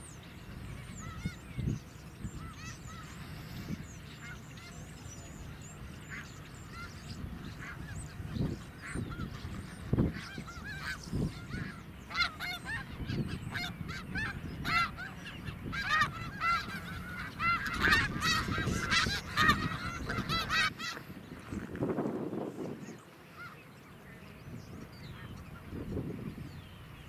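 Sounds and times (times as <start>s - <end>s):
geese honking: 0.0s - 21.6s, 22.6s - 26.1s.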